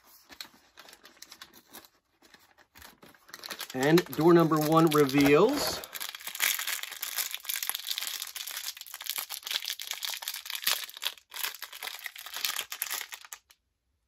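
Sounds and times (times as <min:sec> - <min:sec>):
plastic bag being torn open: 0:02.9 - 0:13.5.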